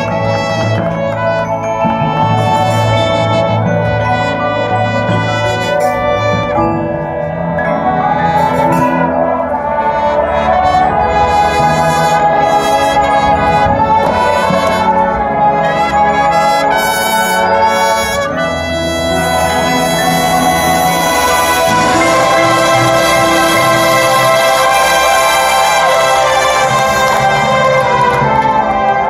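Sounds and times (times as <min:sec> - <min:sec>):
brass chords: 0:00.0 - 0:29.0
marching band playing: 0:00.0 - 0:29.0.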